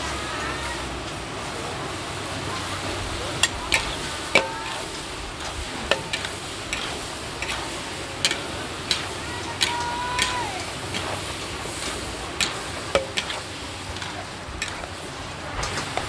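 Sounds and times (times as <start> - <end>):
steady sizzle: 0.0 - 16.0
utensils scraping metal wok: 2.6 - 16.0.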